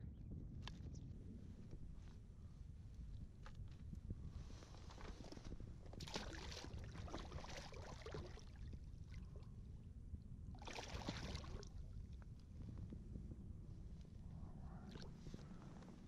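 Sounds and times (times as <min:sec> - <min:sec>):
water splashing beside a kayak: 0:04.9 - 0:09.1, 0:10.6 - 0:12.0.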